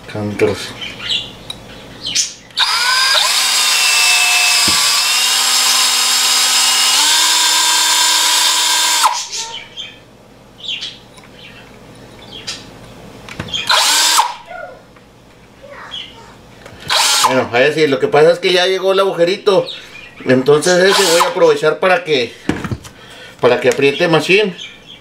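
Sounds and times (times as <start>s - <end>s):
cordless drill boring into metal: 2.6s - 9.3s, 13.7s - 14.4s, 16.9s - 17.4s, 20.8s - 21.4s.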